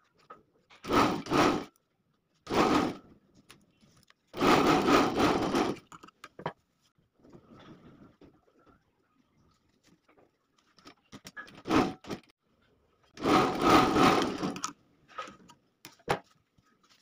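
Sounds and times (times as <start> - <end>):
sewing machine stitching: 0.8 - 1.7, 2.5 - 3.1, 4.4 - 5.9, 11.5 - 12.3, 13.2 - 14.7.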